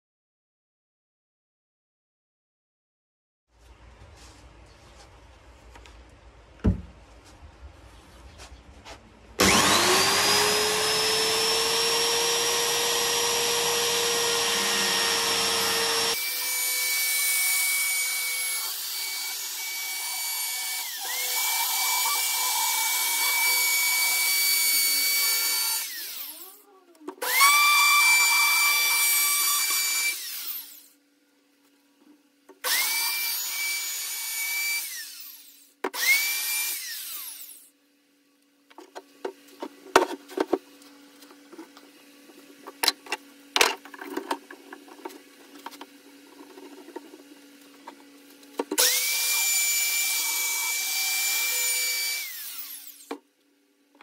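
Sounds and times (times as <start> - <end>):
power tool whining: 9.4 - 31.0, 32.6 - 37.7, 48.6 - 53.2.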